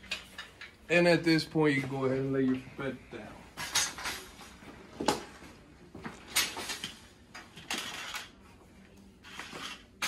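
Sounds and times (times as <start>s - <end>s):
metal bed frame clanking and rattling: 3.6s - 5.2s, 6.2s - 8.4s.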